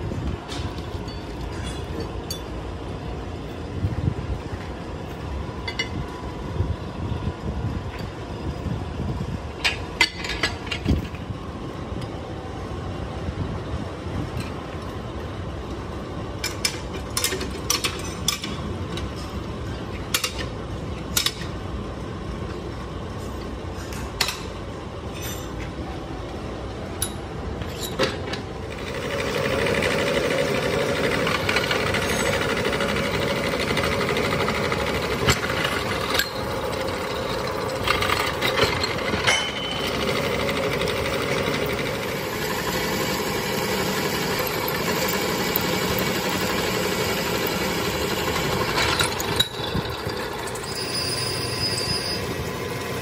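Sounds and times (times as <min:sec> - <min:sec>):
drill press running: 0:28.6 - 0:53.0.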